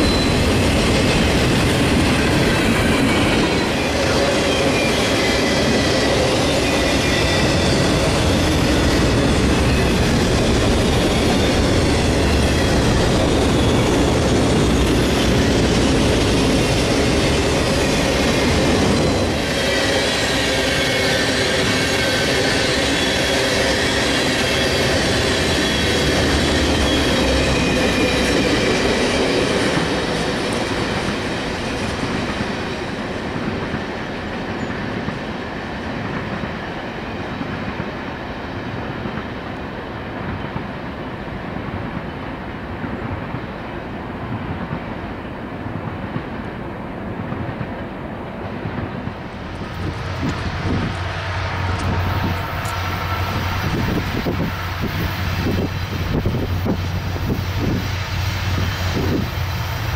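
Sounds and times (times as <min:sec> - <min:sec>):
high wheel squeal: 0:00.0 - 0:32.1, 0:49.5 - 0:59.9
train wheels rumbling on rail: 0:00.0 - 0:59.9.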